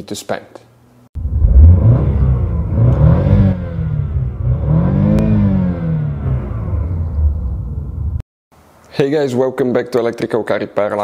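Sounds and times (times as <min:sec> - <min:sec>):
car engine revving: 0:01.2 - 0:08.2.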